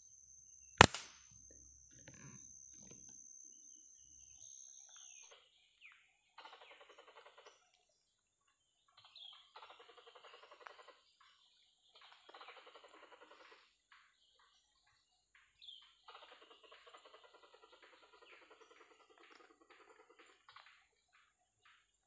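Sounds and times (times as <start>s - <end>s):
rapid rattling animal calls: 6.4s - 7.9s, 8.8s - 22.0s.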